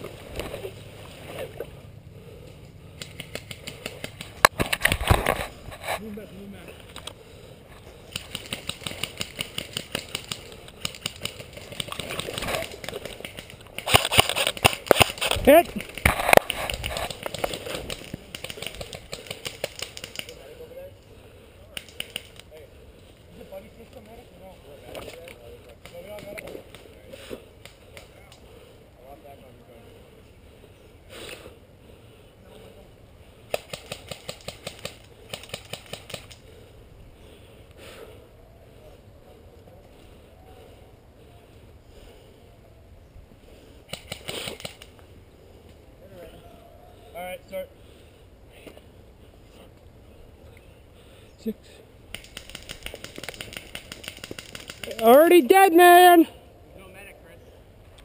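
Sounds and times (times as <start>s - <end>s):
airsoft gun firing: 13.8s - 16.2s.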